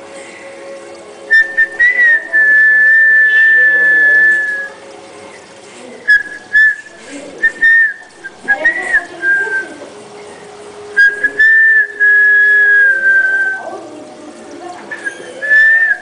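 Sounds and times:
person whistling: 0:01.3 - 0:04.8, 0:06.1 - 0:09.6, 0:11.0 - 0:13.7, 0:14.9 - 0:16.0.

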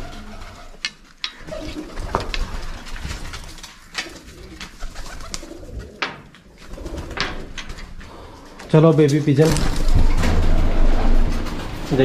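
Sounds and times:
pigeons cooing: 0:00.0 - 0:08.4.

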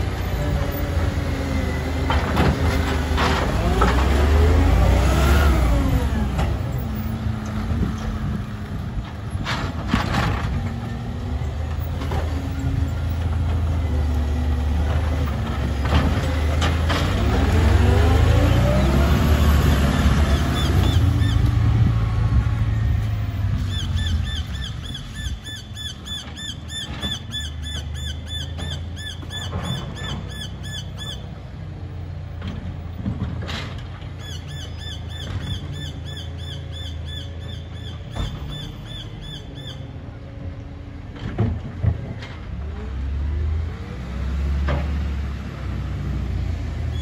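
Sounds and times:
garbage truck engine rumble: 0:00.0 - 0:47.0
knocks and clunks: 0:32.4 - 0:34.2, 0:41.1 - 0:42.7.

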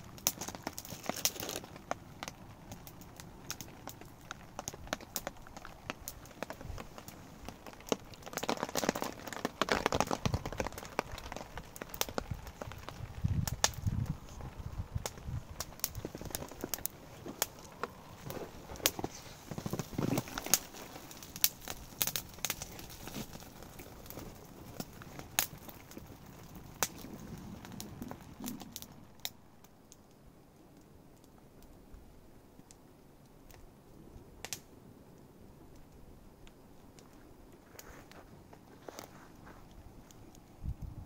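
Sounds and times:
wood fire crackling and popping: 0:00.0 - 0:41.0
rustling handling noise: 0:15.5 - 0:21.5, 0:37.1 - 0:40.5.

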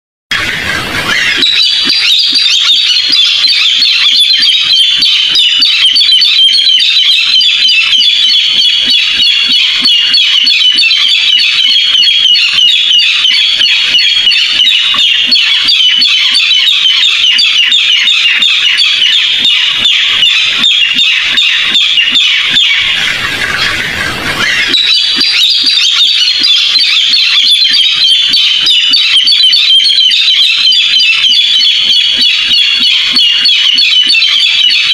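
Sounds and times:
bird calling fast high notes: 0:00.3 - 0:34.9.

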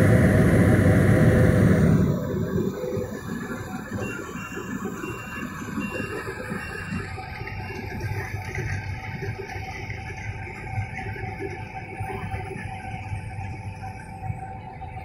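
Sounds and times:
combine harvester running: 0:00.0 - 0:11.8.

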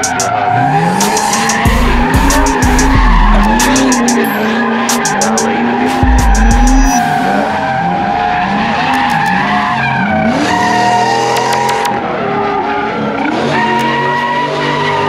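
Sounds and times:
car engines revving: 0:00.0 - 0:15.0
tires squealing: 0:00.0 - 0:15.0
low engine rumble: 0:01.7 - 0:04.1.

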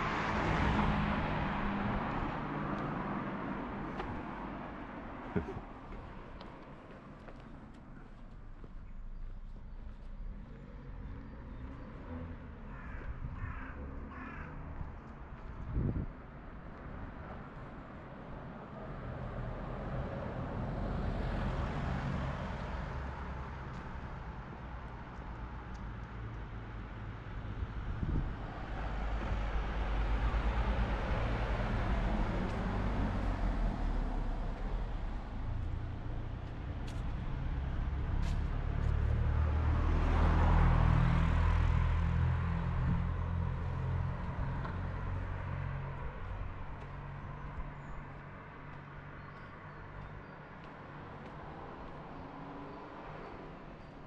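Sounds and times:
cars driving past: 0:00.0 - 0:54.0
crow cawing: 0:12.7 - 0:14.7.

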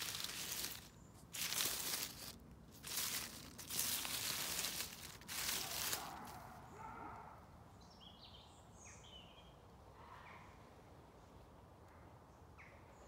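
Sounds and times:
footsteps crunching through dry leaves: 0:00.0 - 0:06.5.

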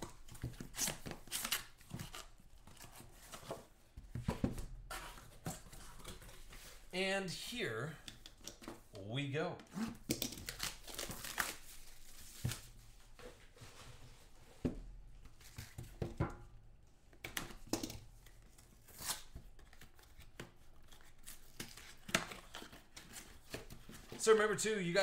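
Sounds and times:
plastic shrink wrap ripping: 0:10.2 - 0:12.1.

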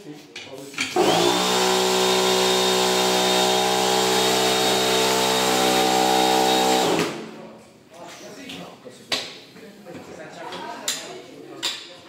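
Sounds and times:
air compressor motor buzzing: 0:00.9 - 0:07.3.

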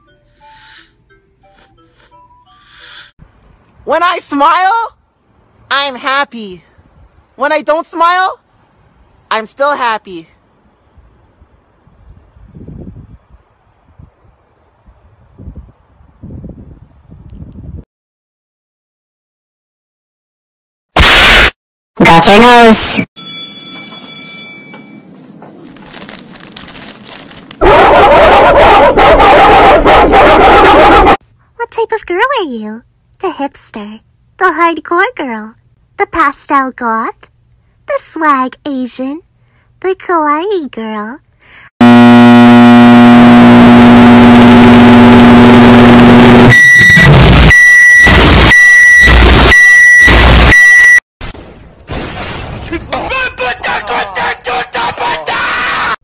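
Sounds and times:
faint crackle: 0:25.5 - 0:27.6
dogs howling and screaming: 0:27.6 - 0:31.2.

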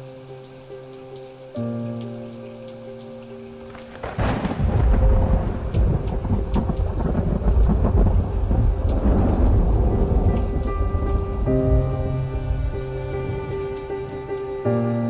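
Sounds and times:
heavy rain: 0:00.0 - 0:15.0
loud thunder rumbling: 0:04.0 - 0:14.2.

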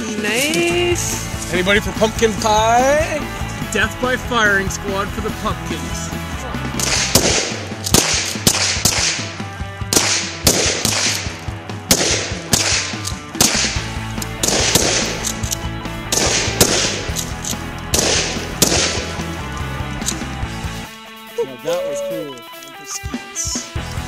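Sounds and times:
sustained bass notes: 0:00.0 - 0:07.8, 0:13.7 - 0:20.9.

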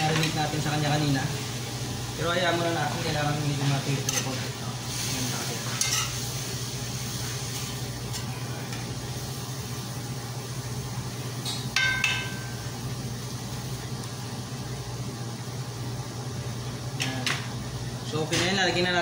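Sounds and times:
meat sizzling in a frying pan: 0:00.0 - 0:15.8
metal spoon clinking against pan: 0:11.8 - 0:12.6.

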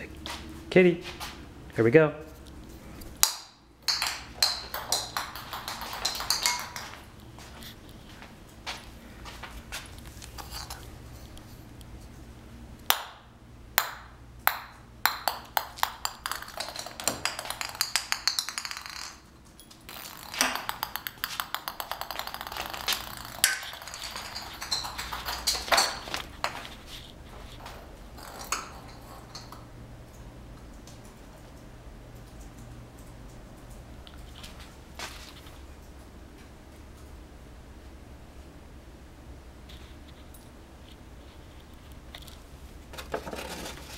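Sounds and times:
ping pong ball bouncing on wood floor: 0:03.2 - 0:07.0, 0:12.9 - 0:13.2, 0:13.8 - 0:19.2, 0:19.9 - 0:26.3.

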